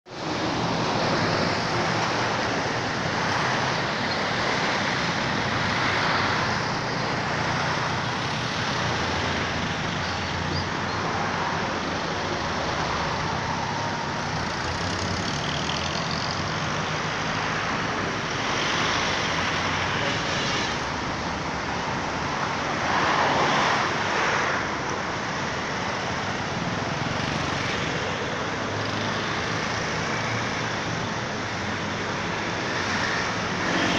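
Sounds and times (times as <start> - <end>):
road traffic: 0.0 - 33.9.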